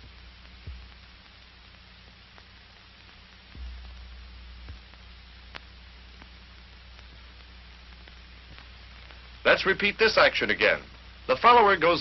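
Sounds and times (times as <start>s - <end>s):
faint clicks: 0.0s - 9.4s
film soundtrack hiss and hum: 0.0s - 12.0s.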